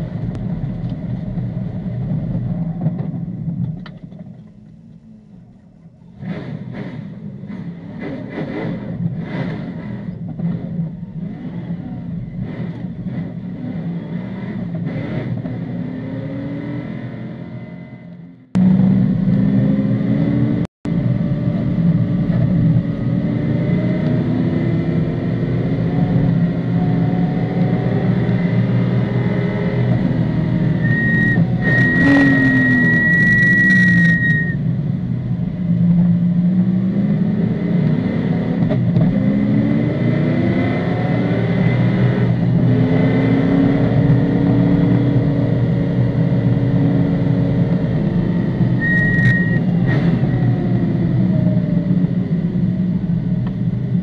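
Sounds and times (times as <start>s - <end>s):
race car engine revving: 6.1s - 53.3s
high steady tone: 30.8s - 34.6s, 48.8s - 49.7s.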